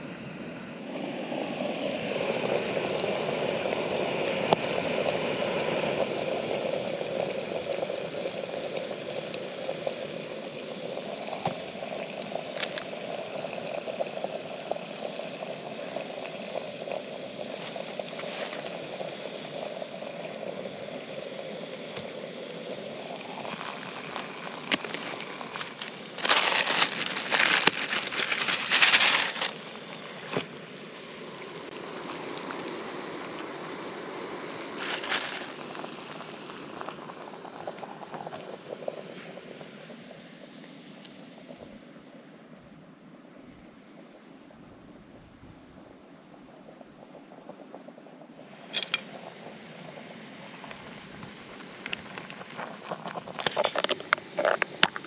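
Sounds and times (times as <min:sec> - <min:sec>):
water gurgling: 0:00.0 - 0:55.0
water splashing: 0:23.3 - 0:30.5.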